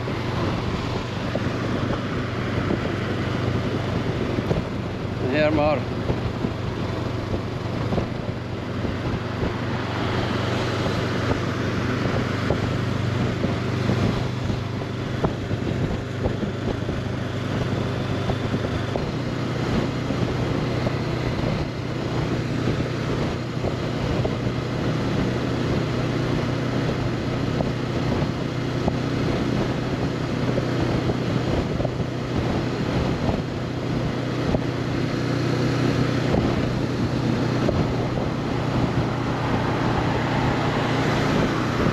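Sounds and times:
motorcycle engine cruising: 0.0s - 41.9s
wind rushing over microphone: 0.0s - 41.9s.

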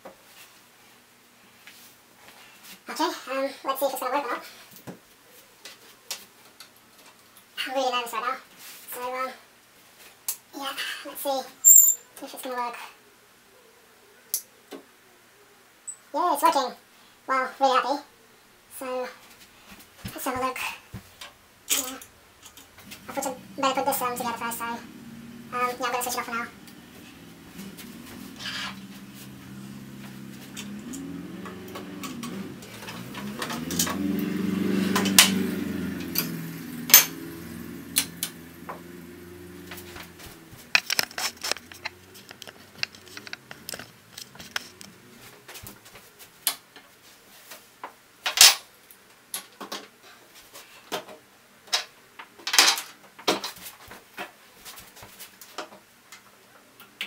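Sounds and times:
metal tools clinking and knocking: 11.7s - 12.0s
low steady hum: 18.2s - 46.1s.

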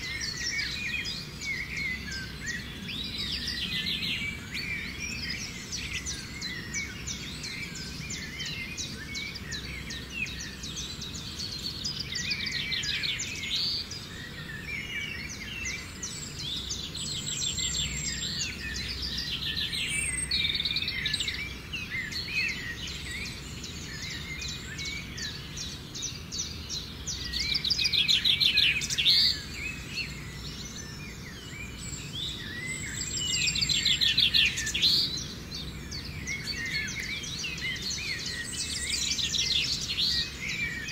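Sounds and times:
birds chirping and trilling: 0.0s - 40.9s
low steady background noise: 0.0s - 40.9s.

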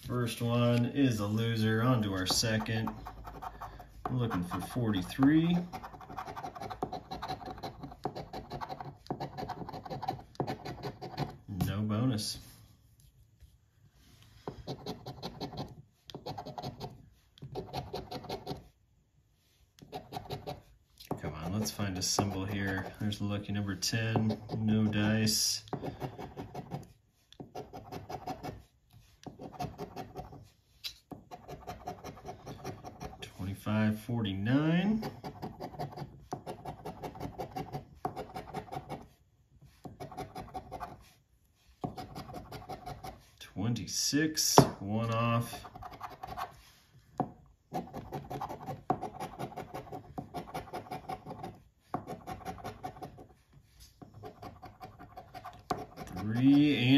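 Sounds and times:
coin scratching lottery ticket: 2.2s - 11.4s, 31.3s - 33.2s, 47.7s - 53.3s.

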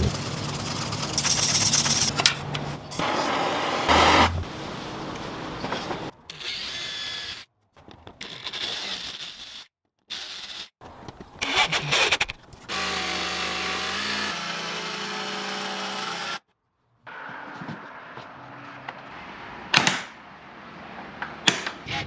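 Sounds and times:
drill driving screws: 8.2s - 10.7s
jigsaw cutting wood: 12.7s - 16.4s.

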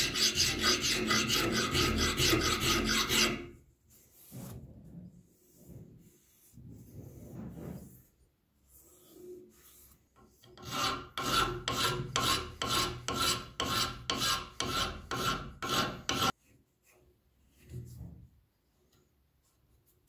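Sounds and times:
hand file scraping steel bar: 0.0s - 3.6s, 8.9s - 16.4s.

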